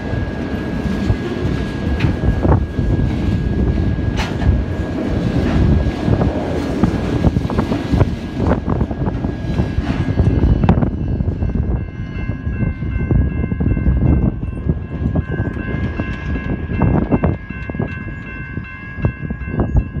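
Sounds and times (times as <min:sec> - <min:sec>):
freight train rumbling by: 0:00.0 - 0:20.0
train wheel clicks: 0:01.0 - 0:03.4, 0:04.0 - 0:04.8, 0:13.8 - 0:19.1.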